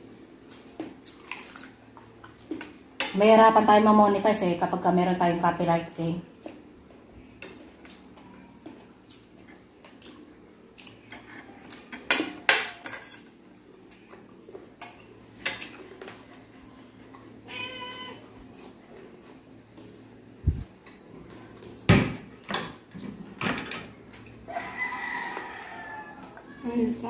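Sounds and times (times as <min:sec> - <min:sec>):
cat meowing: 0:17.5 - 0:18.2.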